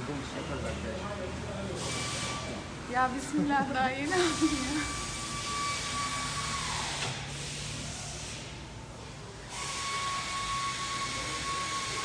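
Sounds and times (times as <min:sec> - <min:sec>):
machine whining: 0:04.1 - 0:08.4, 0:09.5 - 0:12.0.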